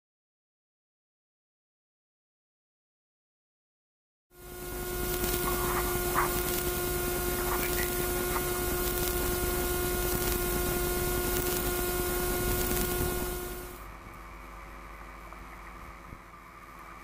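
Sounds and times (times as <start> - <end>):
electrical hum: 4.4 - 17.0
steady hiss: 4.4 - 17.0.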